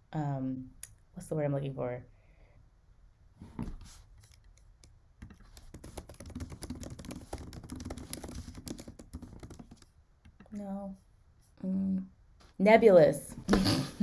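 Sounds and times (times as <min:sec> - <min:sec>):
keyboard typing: 0:04.2 - 0:10.5.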